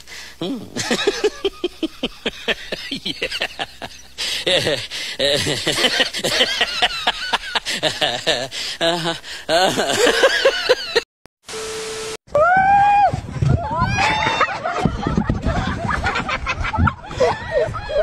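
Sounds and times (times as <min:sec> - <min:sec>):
women laughing and giggling: 0:00.8 - 0:11.0, 0:14.0 - 0:18.0.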